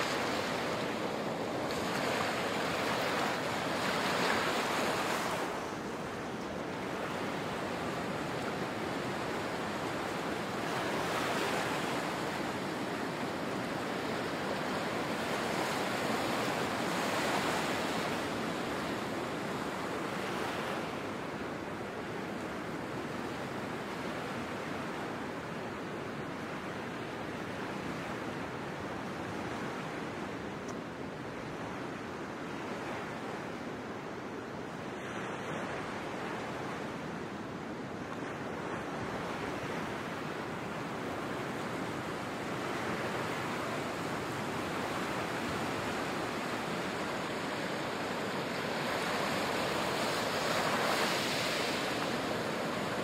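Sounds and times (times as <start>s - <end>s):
waves washing onto rocky beach: 0.0s - 20.8s, 40.5s - 53.0s.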